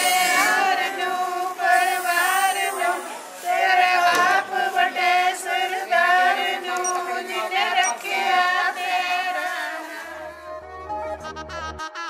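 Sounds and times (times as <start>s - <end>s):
women singing without instruments: 0.0s - 10.4s.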